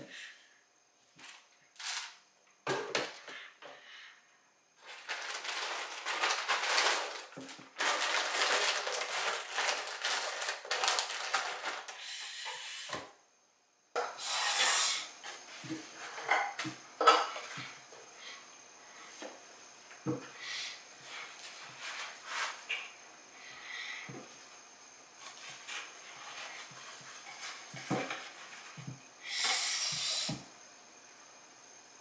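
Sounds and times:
plastic packaging crinkling: 4.8 - 11.9.

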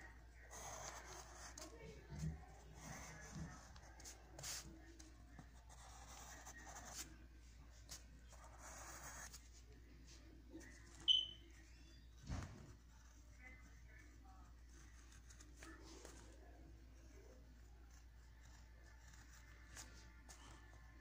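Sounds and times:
pencil scratching on paper: 0.0 - 7.2, 7.8 - 11.1, 12.7 - 21.0
sharp high squeak: 11.0 - 12.0.

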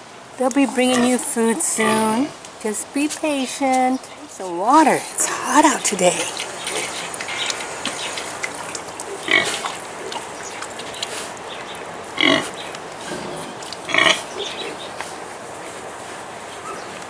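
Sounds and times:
boar grunting: 9.2 - 10.4, 12.1 - 15.0
faint snuffling: 12.2 - 17.0.

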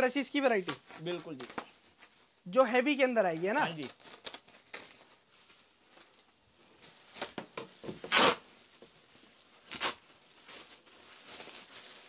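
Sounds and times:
plastic sack rustling and ripping: 3.2 - 12.0.

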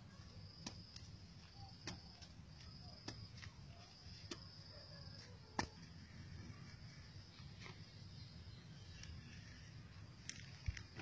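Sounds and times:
hand hoe chopping dry soil: 0.0 - 6.2.

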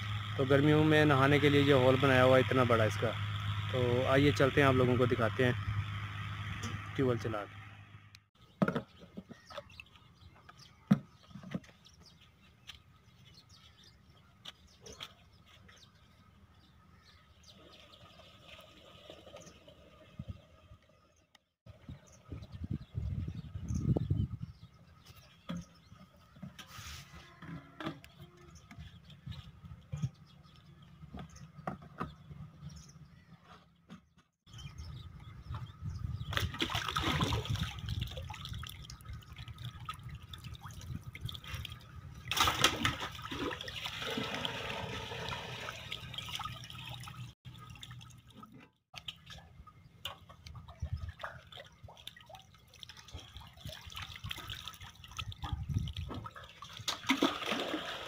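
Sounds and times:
water splashing and gurgling: 36.2 - 58.0.

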